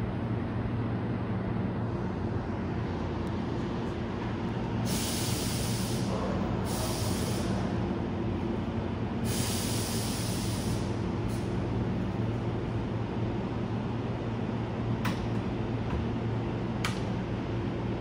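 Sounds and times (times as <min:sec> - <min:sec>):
electric train low hum: 0:00.0 - 0:18.0
air brakes hissing: 0:04.8 - 0:07.8, 0:09.2 - 0:11.5.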